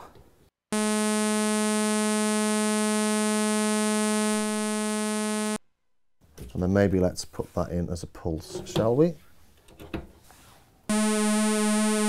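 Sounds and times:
synthesizer buzzing tone: 0.7s - 5.6s, 10.9s - 12.0s.

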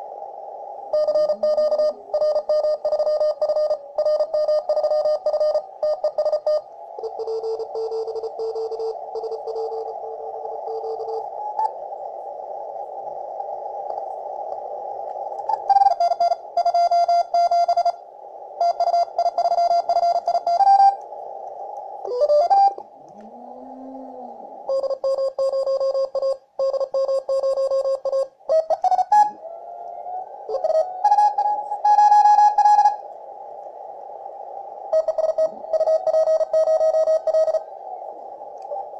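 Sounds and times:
radio band hiss: 0.0s - 38.9s
morse code beeps: 1.0s - 9.9s, 10.6s - 11.7s, 15.5s - 18.0s, 18.6s - 21.0s, 22.1s - 22.8s, 24.7s - 29.4s, 30.5s - 33.0s, 34.9s - 37.6s.

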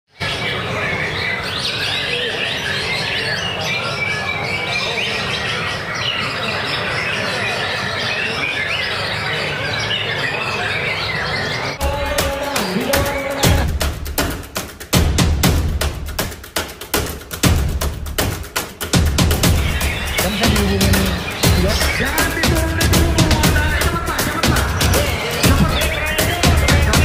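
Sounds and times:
other birds calling: 0.1s - 27.0s
music with sharp percussive hits: 11.8s - 27.0s.

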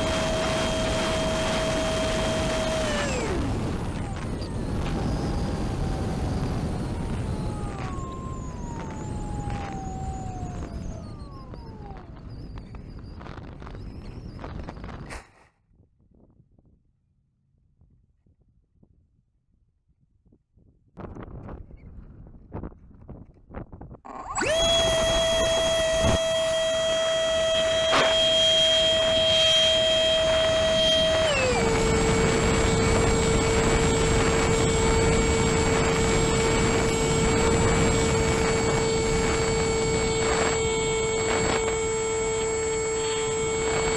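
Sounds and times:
short falling whine: 0.0s - 15.2s, 24.1s - 43.9s
electric motor and propeller whining: 0.0s - 15.4s, 24.0s - 43.9s
wind rumble on microphone: 0.0s - 43.9s.

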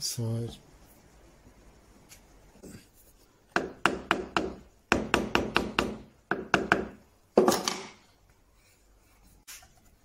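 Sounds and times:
hammer tapping wood: 3.5s - 7.9s.

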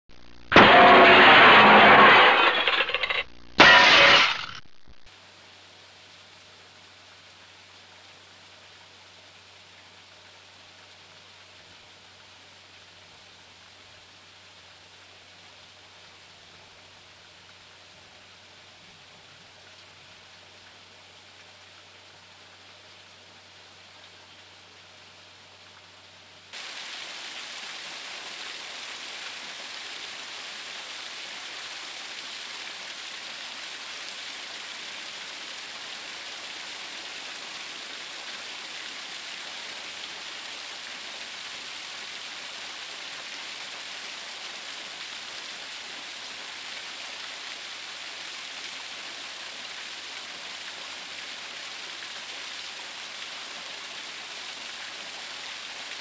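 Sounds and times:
flowing water: 5.2s - 56.0s
waterfall splashing onto rocks: 26.6s - 56.0s.

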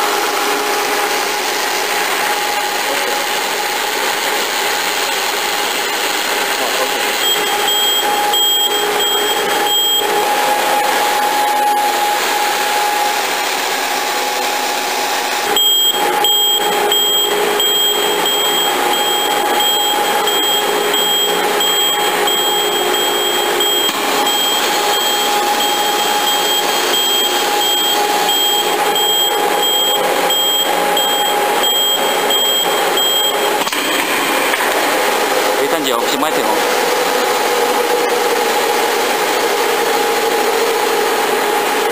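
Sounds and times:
machine hum with whine: 0.0s - 41.9s
high-pitched beeping: 6.6s - 13.2s, 15.4s - 33.6s.

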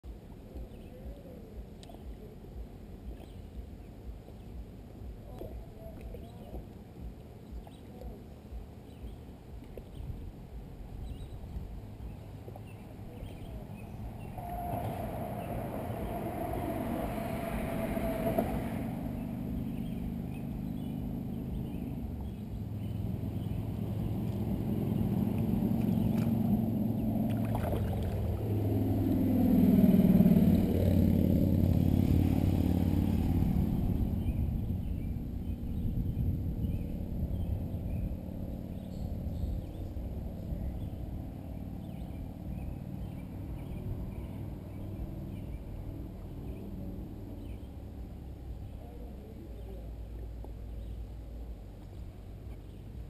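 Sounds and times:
engine passing by: 11.8s - 53.0s.

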